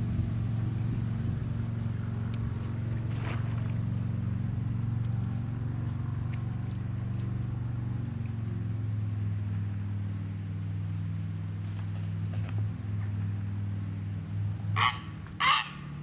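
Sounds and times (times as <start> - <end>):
engine humming: 0.0 - 16.0
water splash: 0.1 - 4.5.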